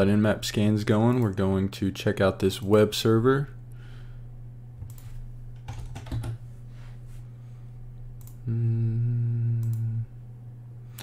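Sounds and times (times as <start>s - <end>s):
steady low hum: 0.0s - 11.0s
computer keyboard keystrokes: 4.8s - 6.4s
loud low hum: 6.4s - 11.0s.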